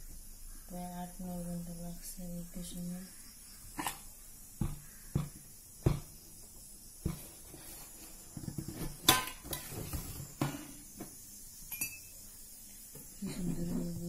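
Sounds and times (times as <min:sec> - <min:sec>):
knocks on metal container: 0:04.6 - 0:06.1
metallic clink with ringing: 0:11.7 - 0:12.2.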